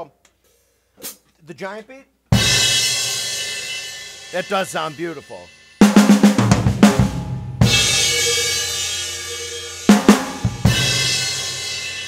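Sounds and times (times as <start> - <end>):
cymbal crash ringing: 2.4 - 12.0
drum fill: 5.8 - 12.0.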